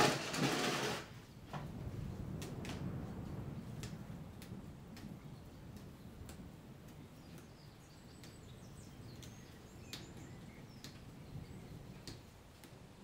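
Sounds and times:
low even rumble: 0:01.3 - 0:07.3
rain drips ticking: 0:01.5 - 0:13.0.

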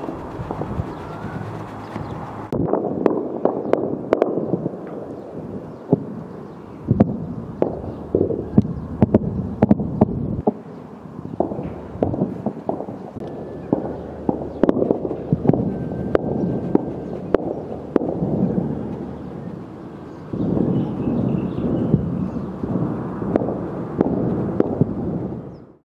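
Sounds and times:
low continuous rumble: 0:00.0 - 0:25.8
gunshots cracking: 0:17.3 - 0:19.0.

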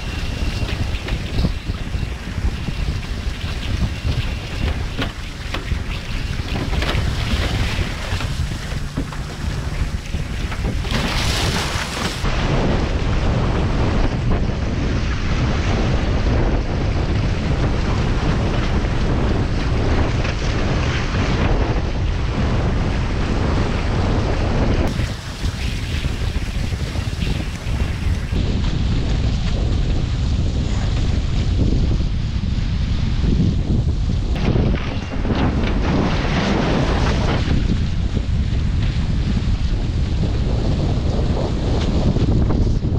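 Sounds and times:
water rushing and spray: 0:00.0 - 0:13.4, 0:24.9 - 0:28.6
wind buffeting microphone: 0:00.0 - 0:42.9.

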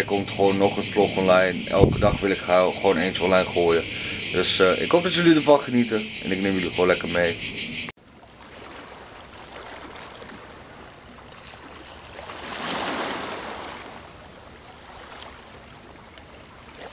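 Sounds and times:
small waves lapping on shore: 0:08.0 - 0:16.9.

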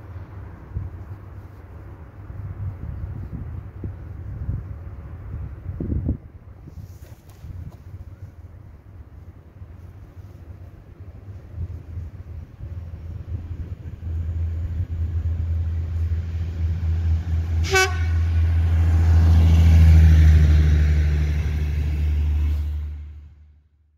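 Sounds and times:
rail vehicle engine hum: 0:00.0 - 0:23.9
short horn toot: 0:17.6 - 0:18.4.

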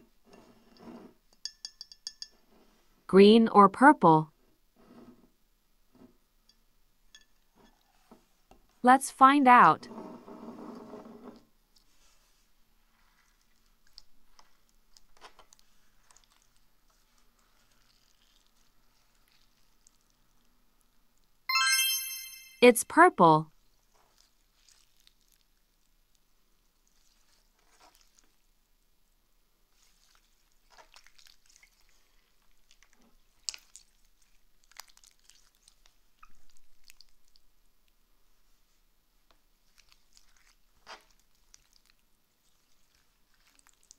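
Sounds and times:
slime squishing: 0:11.7 - 0:20.5, 0:23.7 - 0:28.5, 0:29.7 - 0:37.5, 0:39.4 - 0:43.9.

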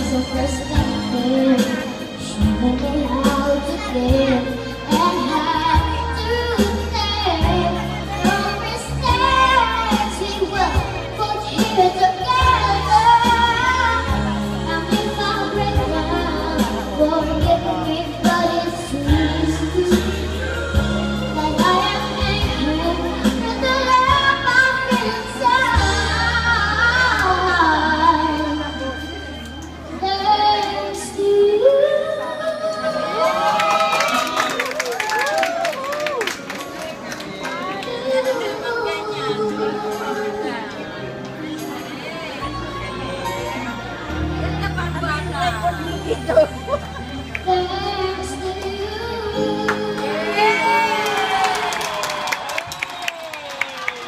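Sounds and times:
girl singing into a microphone: 0:00.0 - 0:29.2, 0:29.9 - 0:33.3, 0:37.6 - 0:40.8, 0:47.4 - 0:51.0.

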